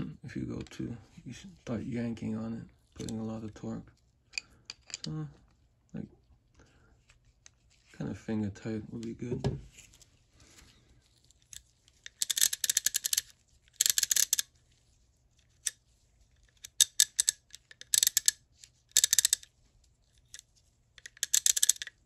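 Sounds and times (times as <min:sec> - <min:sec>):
ratchet clicking: 0:12.1 - 0:14.4, 0:16.6 - 0:19.5, 0:21.0 - 0:21.9.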